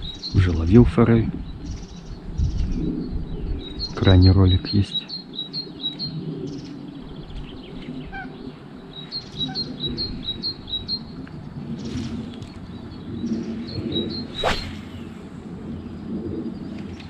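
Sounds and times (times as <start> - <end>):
songbird chirping: 0.0 - 17.0
loud swish: 14.3 - 15.3.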